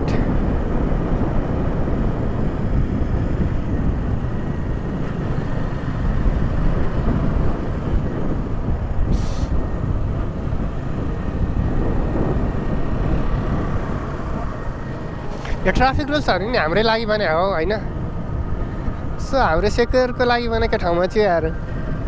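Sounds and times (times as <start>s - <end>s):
motorbike engine rumble: 0.0s - 22.0s
wind noise: 0.0s - 22.0s
short hiss: 9.1s - 9.5s.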